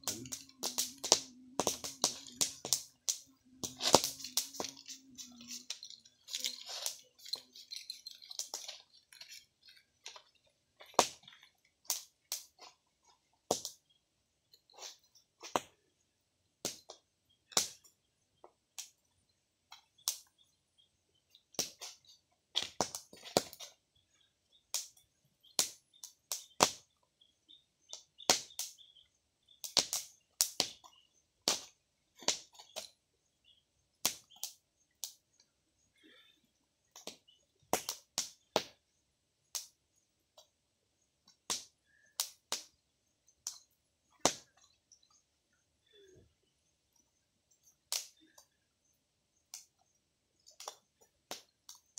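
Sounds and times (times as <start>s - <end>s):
wood fire crackling: 0.0s - 15.8s, 27.9s - 32.9s, 36.9s - 38.7s, 41.2s - 42.8s, 43.4s - 45.1s, 47.6s - 48.5s.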